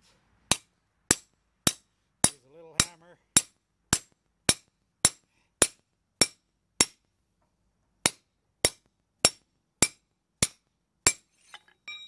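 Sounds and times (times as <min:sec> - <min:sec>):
hammer striking steel: 0:08.0 - 0:12.0.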